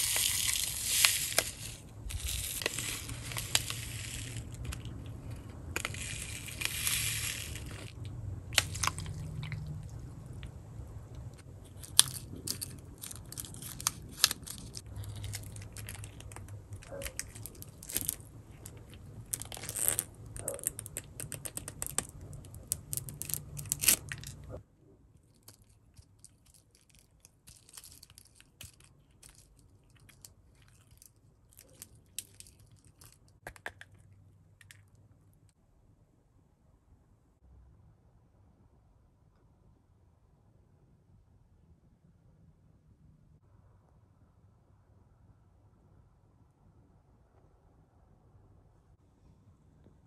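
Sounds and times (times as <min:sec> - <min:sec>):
plastic pieces crackling and clicking: 0:00.0 - 0:10.4, 0:11.7 - 0:24.6, 0:25.3 - 0:34.9.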